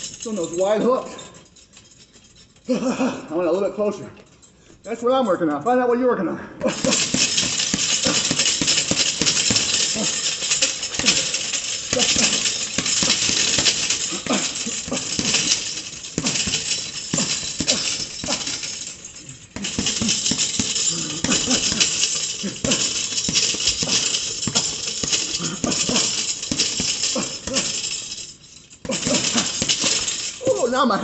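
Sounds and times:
boxing gloves punching bag: 6.6s - 28.2s, 28.8s - 30.6s.

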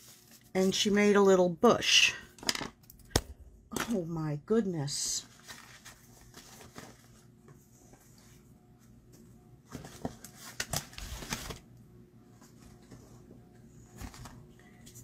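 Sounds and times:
paper rustling: 0.0s - 1.0s, 5.2s - 7.3s, 9.7s - 11.6s, 13.9s - 15.0s.

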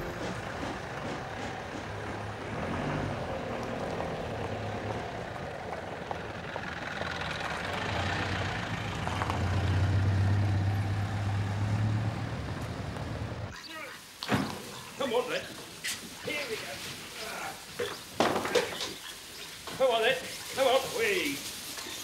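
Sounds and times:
vehicle engine running: 0.0s - 13.5s.

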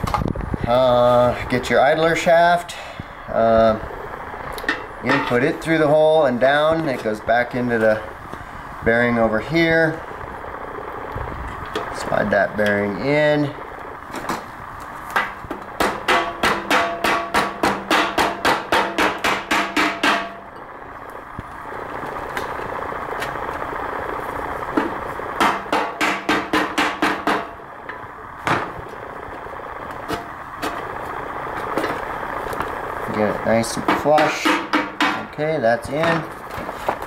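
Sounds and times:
rapid metal-on-metal tapping: 15.1s - 20.7s, 24.8s - 28.6s, 33.7s - 36.3s.

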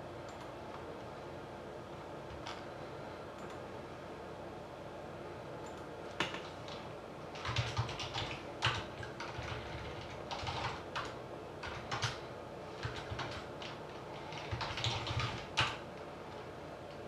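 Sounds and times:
computer keyboard typing: 5.7s - 12.2s, 12.8s - 17.0s.

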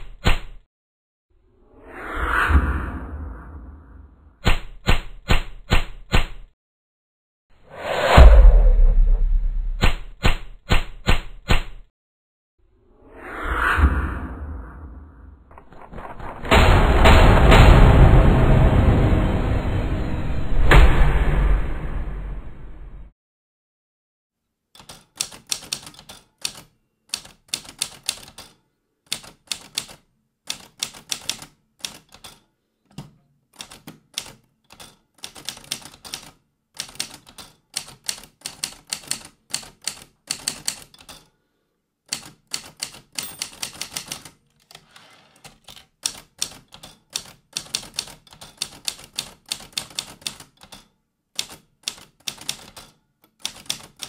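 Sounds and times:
typewriter keys clattering: 24.8s - 32.4s, 33.6s - 41.3s, 42.1s - 54.0s.

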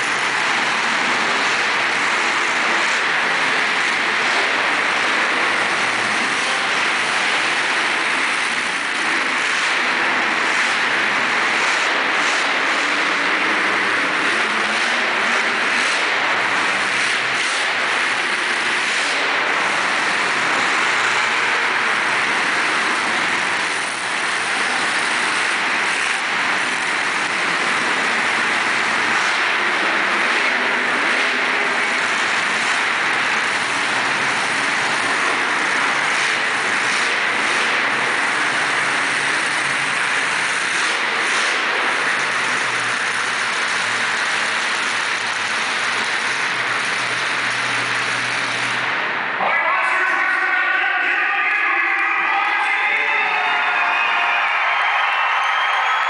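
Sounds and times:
monster truck engines roaring: 0.0s - 56.0s.

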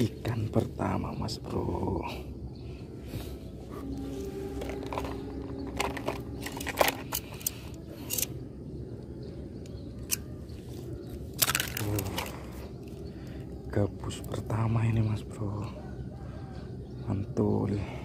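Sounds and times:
steady low rumble: 0.0s - 15.8s.

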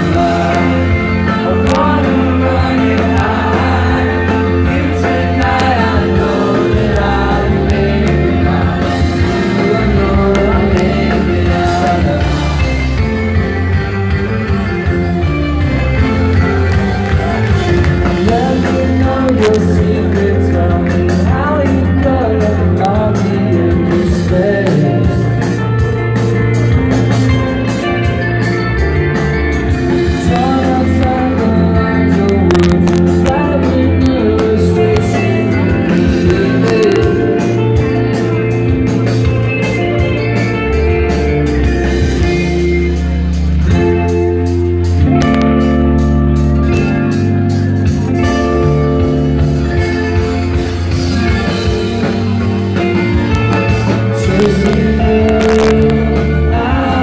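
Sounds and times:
rock band playing loudly: 0.0s - 57.0s.

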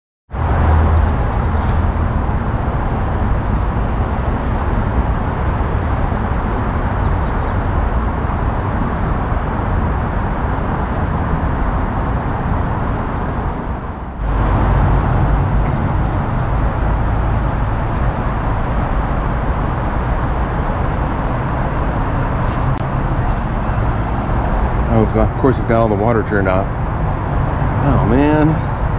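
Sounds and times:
freeway traffic rushing: 0.3s - 28.9s.

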